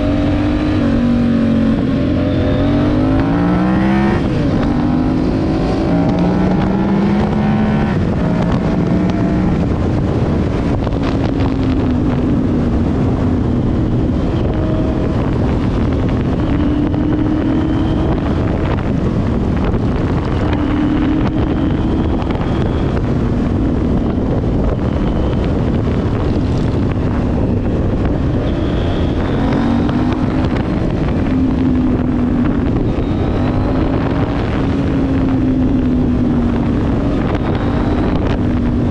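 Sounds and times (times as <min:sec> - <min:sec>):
motorcycle engines revving: 0:00.0 - 0:38.9
wind noise on microphone: 0:00.0 - 0:38.9.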